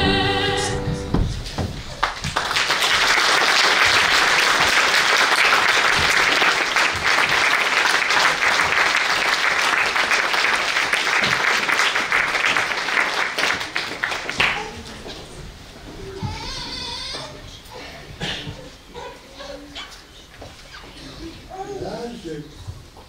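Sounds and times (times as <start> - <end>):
audience applauding: 1.9 - 15.0.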